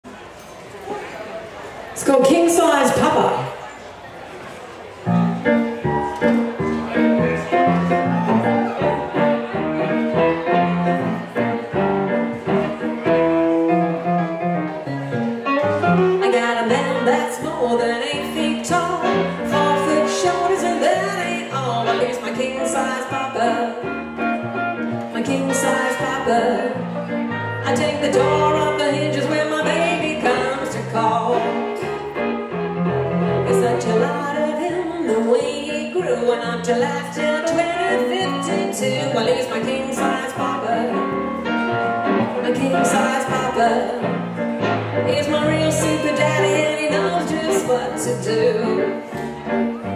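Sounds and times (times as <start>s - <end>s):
woman singing: 16.2s - 24.0s, 25.1s - 26.8s, 27.6s - 31.7s, 33.5s - 41.1s, 42.4s - 44.1s, 45.1s - 49.0s.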